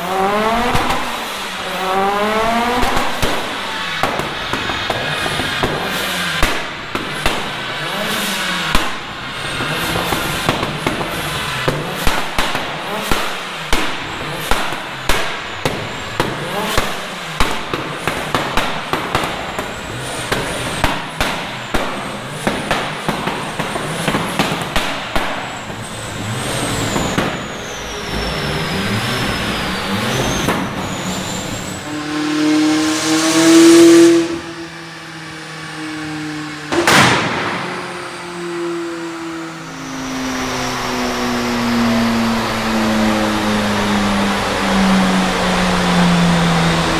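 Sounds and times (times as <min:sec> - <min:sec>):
engine revving hard: 0:00.0 - 0:46.9
turbocharged engine under load: 0:00.0 - 0:46.9
exhaust pops and bangs: 0:00.1 - 0:32.2, 0:36.7 - 0:38.2.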